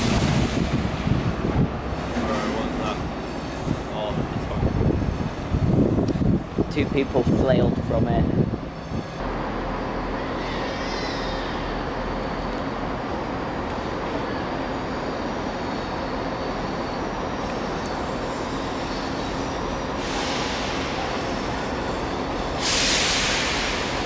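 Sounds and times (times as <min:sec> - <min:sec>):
diesel locomotive engine rumble: 0:00.0 - 0:24.0
hiss: 0:20.0 - 0:21.4, 0:22.6 - 0:24.0.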